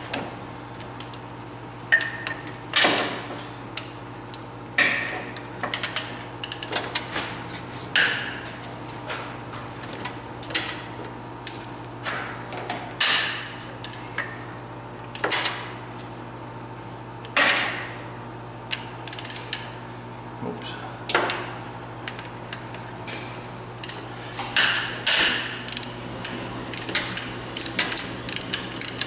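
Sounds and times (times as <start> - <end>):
hand ratchet clicking: 26.7 - 29.0.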